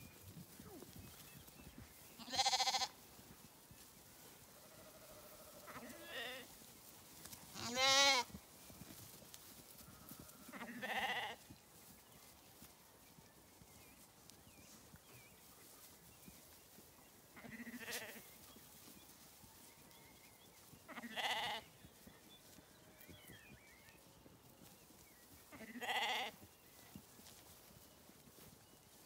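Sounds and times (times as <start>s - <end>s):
lambs bleating: 2.2s - 3.0s, 4.6s - 6.4s, 7.6s - 8.3s, 10.2s - 11.4s, 17.4s - 18.2s, 20.9s - 21.6s, 25.5s - 26.4s.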